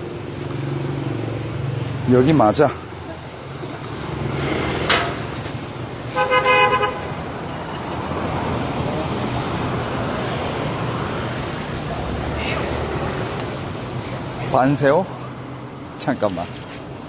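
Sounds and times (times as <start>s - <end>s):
street traffic noise: 0.0s - 17.0s
vehicle horn honking: 6.1s - 7.2s.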